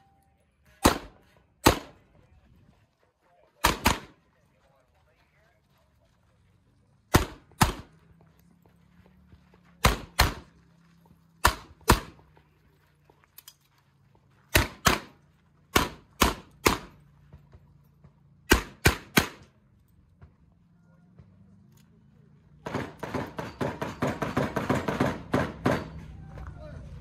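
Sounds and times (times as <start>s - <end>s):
pistol shots in quick pairs: 0.8s - 2.0s, 3.6s - 4.2s, 7.1s - 8.0s, 9.8s - 10.5s, 11.4s - 12.2s, 14.5s - 17.0s, 18.5s - 19.5s, 22.6s - 26.0s.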